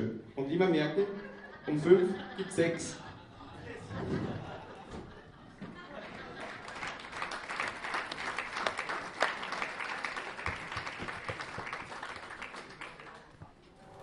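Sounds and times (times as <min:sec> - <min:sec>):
audience applauding: 0:05.8 - 0:13.4.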